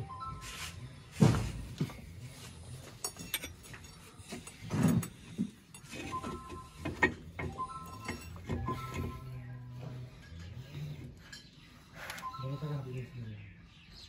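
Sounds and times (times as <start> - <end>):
metal parts and tools clunking: 1.2 - 12.6.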